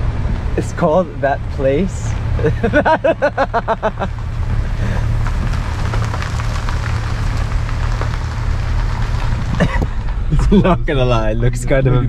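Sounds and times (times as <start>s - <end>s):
van engine rumble: 0.0s - 12.0s
light scattered crackling: 1.5s - 10.6s.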